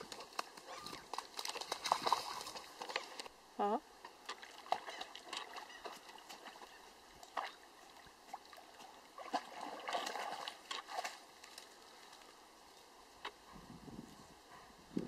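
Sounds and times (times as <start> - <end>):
dog splashing in water: 0.0 - 3.3, 4.3 - 7.6, 8.3 - 11.2.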